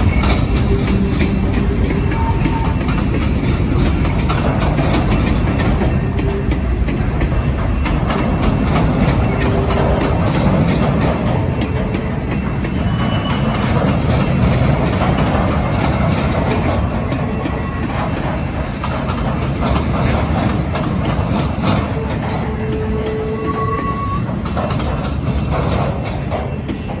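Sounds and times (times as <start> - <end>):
train wheels clanking over rails: 0.0 - 27.0
brief squealing tone: 22.5 - 24.3.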